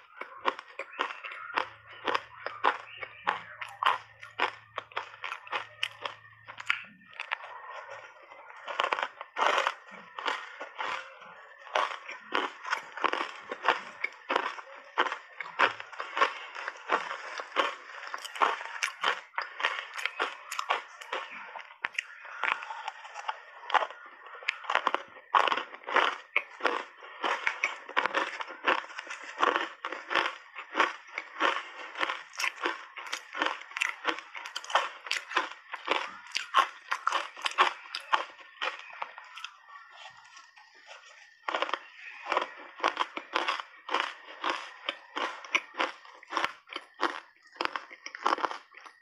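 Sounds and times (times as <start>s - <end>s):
ice cubes crunching: 0.0s - 49.0s.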